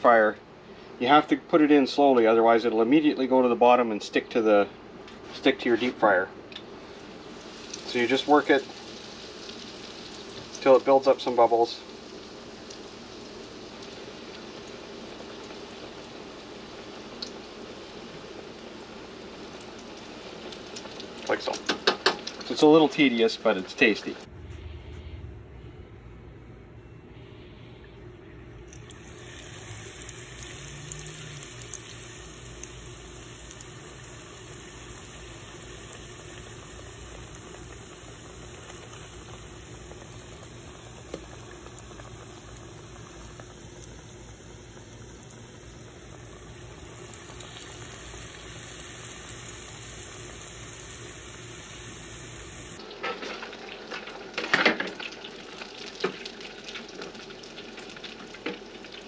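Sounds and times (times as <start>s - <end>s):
food frying in deep fryer: 5.2s - 24.3s, 28.7s - 59.0s.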